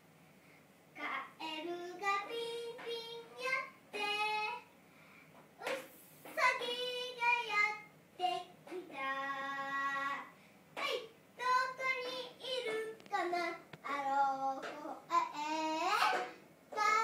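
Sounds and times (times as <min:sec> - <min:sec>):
girl singing: 0:01.0 - 0:04.7, 0:05.6 - 0:17.0.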